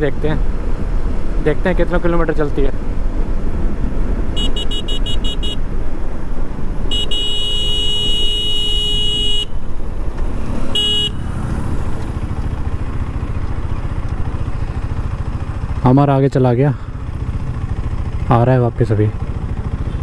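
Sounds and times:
motorcycle engine running: 0:02.9 - 0:20.0
vehicle horn toots and honk: 0:04.4 - 0:05.6, 0:06.9 - 0:09.6, 0:10.7 - 0:11.3.

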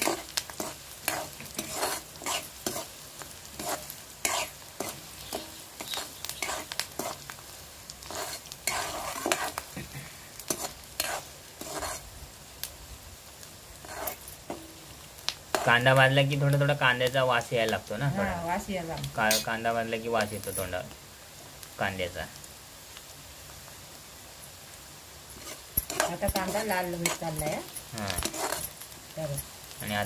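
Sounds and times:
metal spoon scraping a pan: 0:00.0 - 0:07.3, 0:08.0 - 0:09.7, 0:10.4 - 0:12.0, 0:13.8 - 0:14.9, 0:15.5 - 0:15.9, 0:19.0 - 0:19.6, 0:25.3 - 0:29.8
onions sizzling in hot oil: 0:00.0 - 0:30.0.

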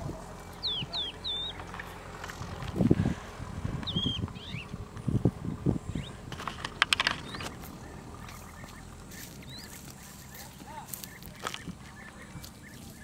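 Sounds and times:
low steady rumble: 0:00.0 - 0:13.0
sharp clicks or knocks: 0:06.3 - 0:07.6.

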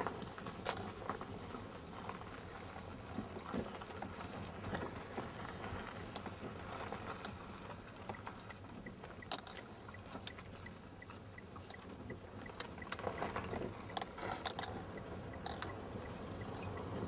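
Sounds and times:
car interior rattles: 0:00.0 - 0:17.0
tyres rumbling on dirt road: 0:00.0 - 0:17.0
faint high ticking: 0:07.7 - 0:17.0.

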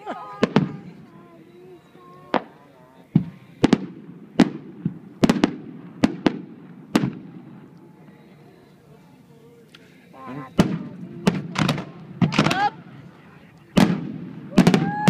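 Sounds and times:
firework shells bursting: 0:10.6 - 0:12.7.

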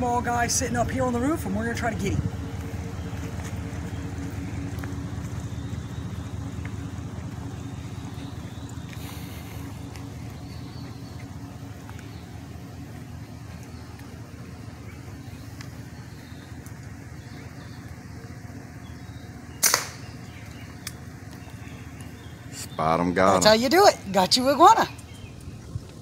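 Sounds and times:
steady low hum: 0:00.0 - 0:26.0
air rifle shot: 0:19.6 - 0:20.1.

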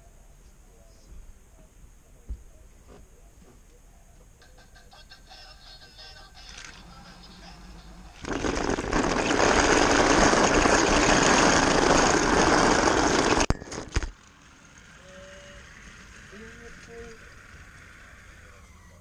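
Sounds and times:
toy car motor on plastic track: 0:06.4 - 0:19.0.

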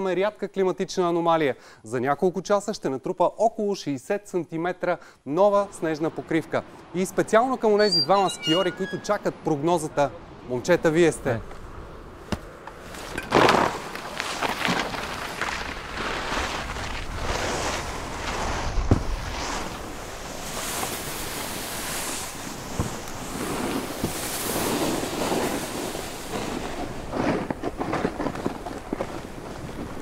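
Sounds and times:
wind: 0:00.0 - 0:30.0
skis spraying through snow: 0:13.4 - 0:30.0.

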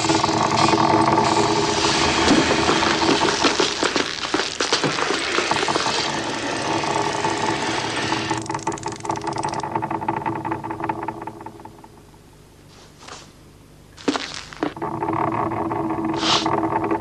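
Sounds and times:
steady low hum: 0:00.0 - 0:17.0
wooden box scraping across platform: 0:01.1 - 0:06.2.

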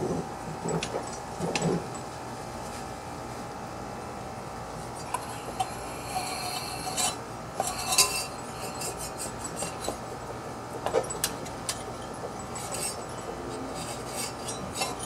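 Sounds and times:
metal parts clinking and scraping: 0:05.0 - 0:10.0, 0:10.8 - 0:15.0.

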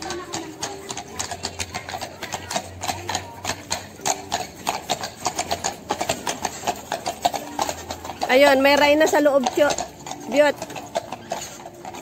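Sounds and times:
horse hooves on paving stones: 0:00.0 - 0:12.0.

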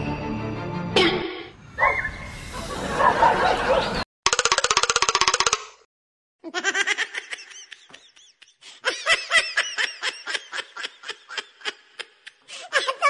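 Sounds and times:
high-pitched laughter: 0:02.6 - 0:04.0, 0:06.4 - 0:13.0.

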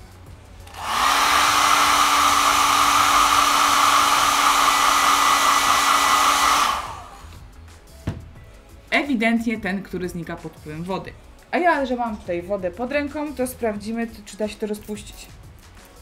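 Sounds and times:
hair dryer blowing: 0:00.6 - 0:07.4.

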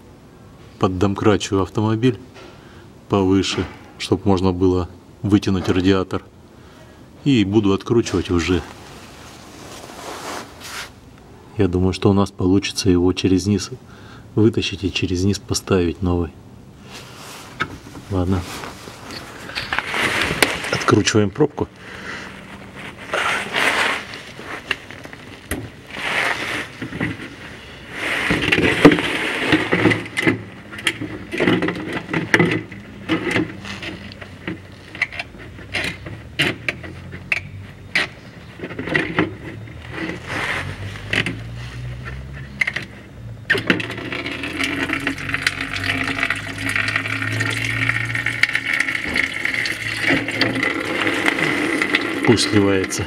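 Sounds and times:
antifreeze pouring out: 0:16.9 - 0:31.7, 0:43.8 - 0:53.0.

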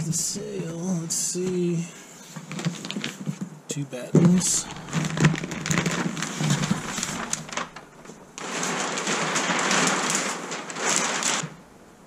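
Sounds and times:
sail cloth rustling and crinkling: 0:00.0 - 0:12.0
packing paper rustling: 0:02.2 - 0:03.5, 0:04.2 - 0:11.7.

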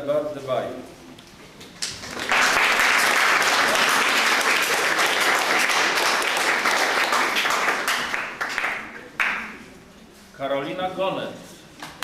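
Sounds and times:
audience applauding: 0:01.8 - 0:09.5.

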